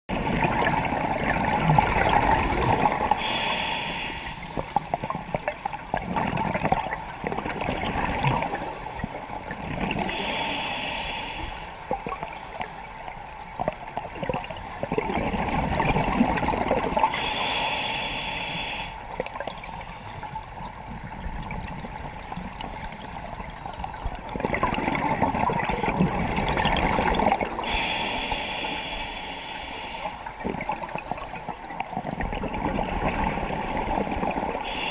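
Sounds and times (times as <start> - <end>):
rush of bubbles: 0.1 - 3.5, 5.4 - 8.7, 13.6 - 17.2, 24.2 - 28.0, 30.3 - 34.9
regulator hiss: 3.2 - 4.6, 10.1 - 11.8, 17.1 - 19.1, 27.6 - 30.3, 34.6 - 34.9.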